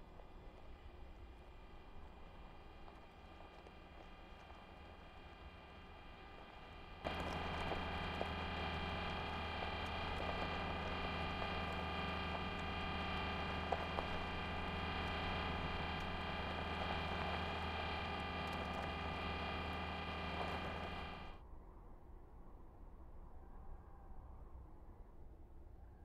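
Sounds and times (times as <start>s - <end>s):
steady multi-tone hum: 0.0s - 21.4s
faint clicks: 1.7s - 21.4s.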